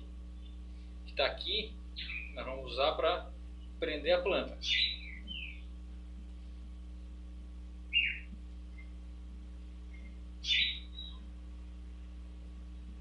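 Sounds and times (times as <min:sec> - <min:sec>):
steady low hum: 0:00.0 - 0:13.0
bird chirping: 0:00.4 - 0:00.6, 0:02.0 - 0:02.6, 0:04.6 - 0:05.8, 0:07.9 - 0:09.0, 0:09.9 - 0:11.3.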